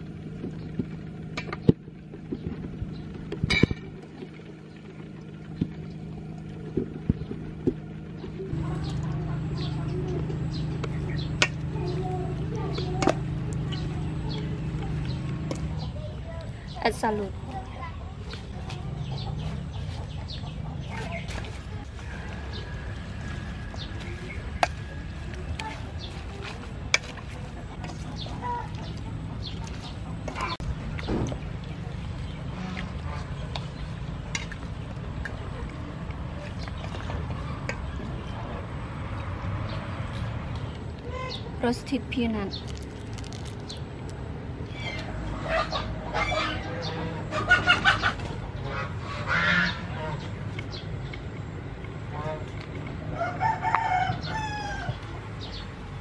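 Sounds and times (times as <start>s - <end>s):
chickens clucking: 6.5s - 34.5s, 44.8s - 51.2s
hen clucking: 32.2s - 33.5s, 44.8s - 50.3s.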